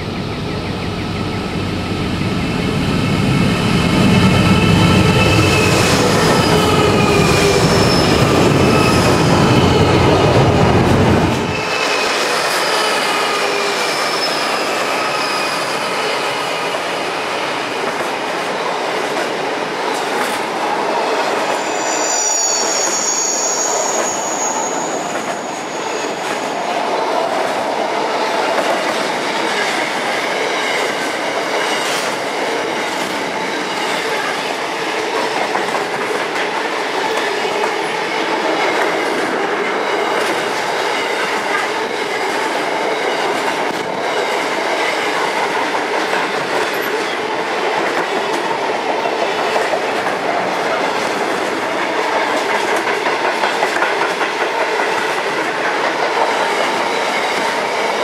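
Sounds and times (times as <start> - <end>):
freight train wheels rumbling: 0.0 - 58.0
high-pitched wheel squeals: 4.6 - 10.0, 21.5 - 26.5.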